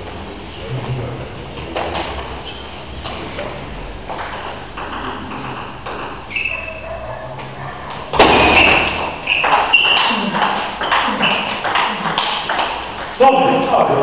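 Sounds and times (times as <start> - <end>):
hall room noise: 0.0 - 14.0
table tennis ball bouncing: 4.0 - 6.7, 8.1 - 13.2.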